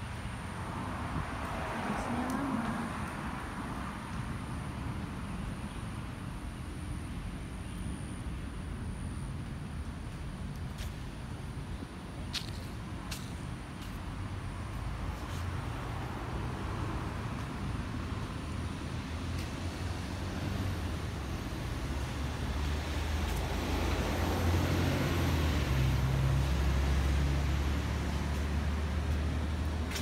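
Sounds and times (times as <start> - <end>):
road traffic: 0.0 - 30.0
passing vehicle engine hum: 0.2 - 4.9, 14.0 - 30.0.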